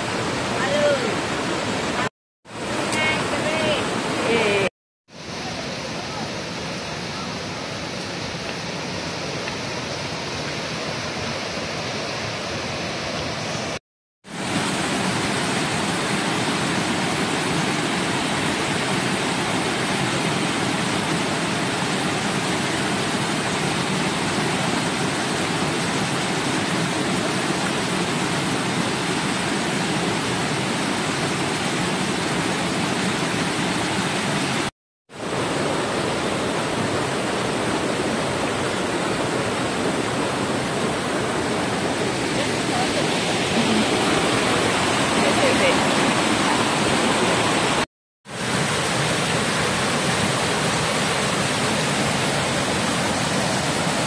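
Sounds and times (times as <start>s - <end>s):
river rushing over boulders: 0.0s - 54.0s.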